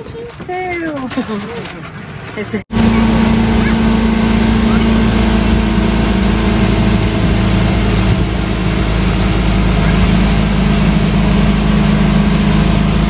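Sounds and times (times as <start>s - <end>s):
outboard motor running: 2.1s - 13.0s
rush of wind and water: 2.7s - 13.0s.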